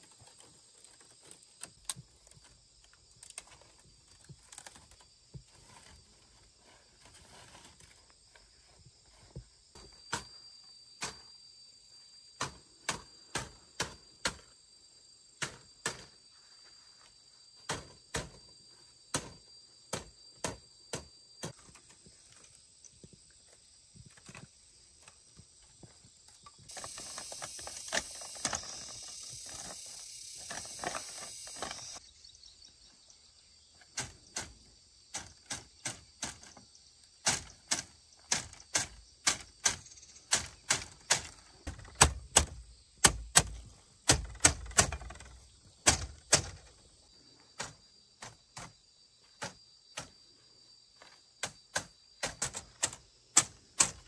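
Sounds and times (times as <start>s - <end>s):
machete striking wood: 19.1s - 21.1s, 37.2s - 46.6s
steady high hiss: 26.4s - 33.5s.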